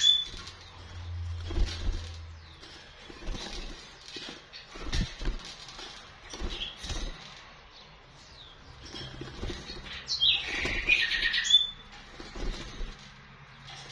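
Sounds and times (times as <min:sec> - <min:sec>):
bird high calls and whistle: 0:00.0 - 0:00.4, 0:09.9 - 0:11.8
bird wings flapping in cage: 0:00.0 - 0:07.6, 0:08.6 - 0:13.9.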